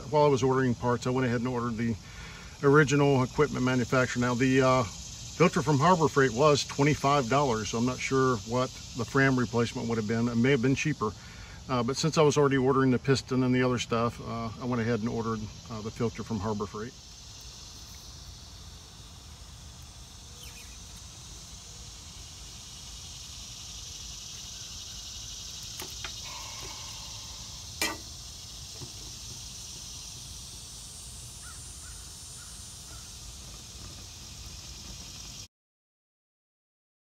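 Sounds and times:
insects droning: 0.0s - 35.5s
faint bird calls: 20.3s - 21.8s, 23.9s - 29.1s, 31.4s - 33.2s.

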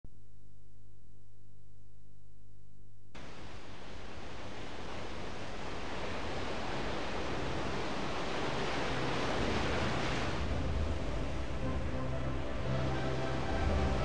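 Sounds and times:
waves breaking and washing in: 3.2s - 14.0s.

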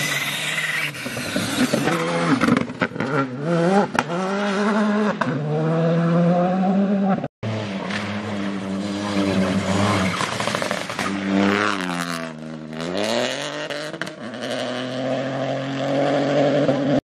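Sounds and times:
rally car engine revving: 0.0s - 17.0s
tyres on gravel: 7.7s - 12.3s.

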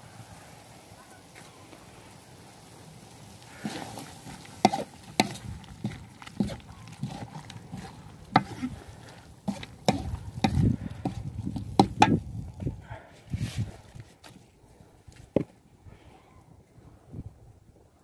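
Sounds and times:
wooden spatula scraping wok: 3.4s - 12.5s.

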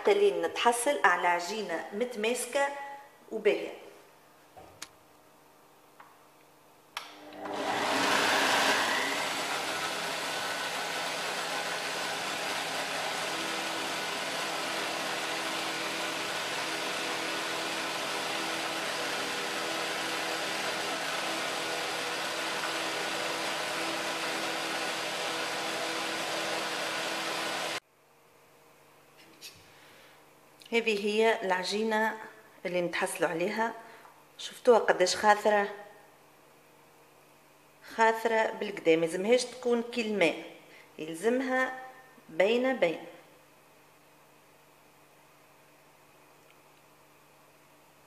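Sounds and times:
blender switch click: 7.0s - 7.5s
blender running: 7.1s - 27.8s.

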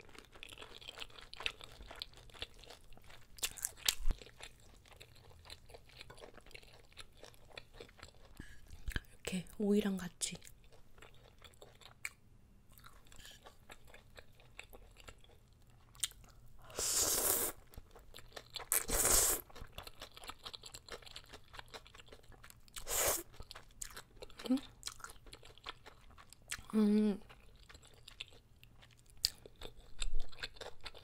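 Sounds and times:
crunchy chewing of cucumber: 0.0s - 9.1s, 10.4s - 31.0s
loud noodle slurps: 16.7s - 17.6s, 18.7s - 19.5s, 22.8s - 23.3s.

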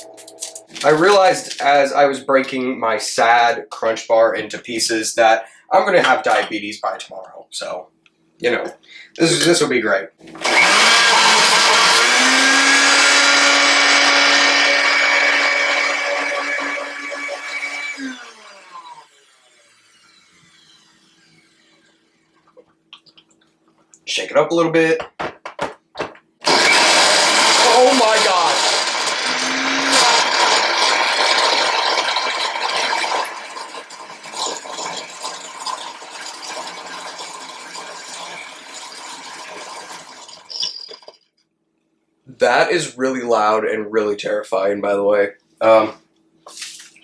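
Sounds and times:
blender motor winding down: 10.3s - 22.3s, 26.4s - 40.8s.

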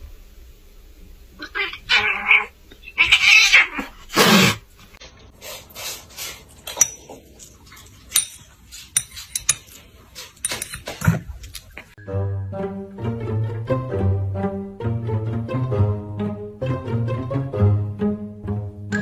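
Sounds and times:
metal spoon clinking on ceramic dish: 6.7s - 7.2s, 8.1s - 9.8s.

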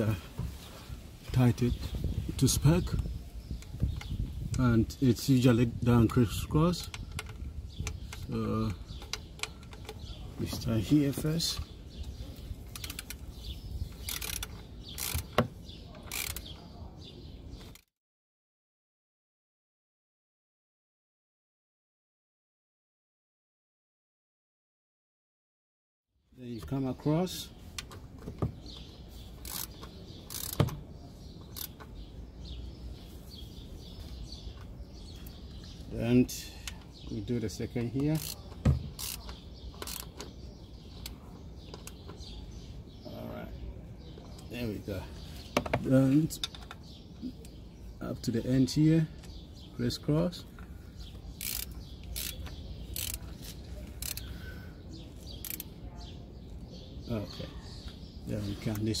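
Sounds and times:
torque wrench clicking: 12.7s - 13.2s, 13.9s - 15.4s, 16.1s - 16.5s, 29.4s - 30.8s, 31.5s - 31.9s, 38.2s - 40.3s, 51.4s - 53.3s, 53.9s - 54.3s, 55.2s - 55.7s.

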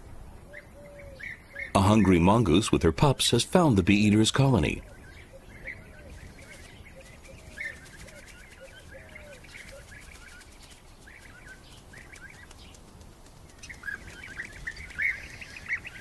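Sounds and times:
flock of birds chirping: 0.0s - 16.0s.

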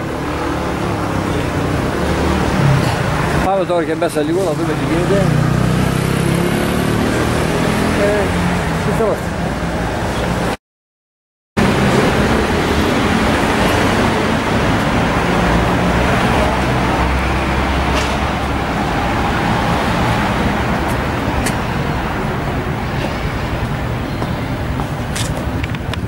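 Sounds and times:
heavy vehicle rumble: 0.0s - 6.3s, 11.6s - 26.0s
passing cars: 0.0s - 10.6s, 11.6s - 26.0s.

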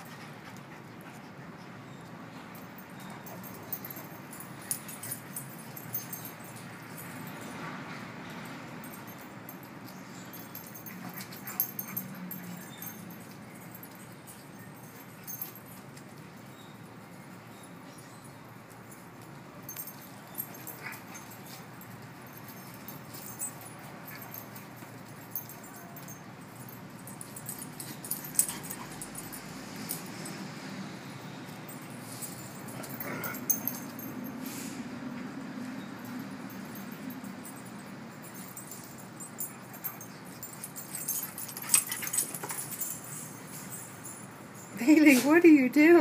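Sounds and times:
dogs playing: 0.0s - 46.0s
dogs scuffling: 39.7s - 44.0s.

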